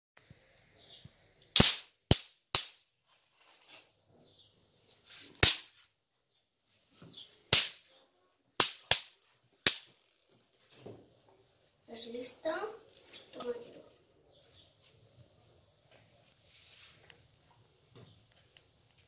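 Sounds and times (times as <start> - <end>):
electric fly-swatter zapping: 1.6 - 2.7, 5.4 - 5.7.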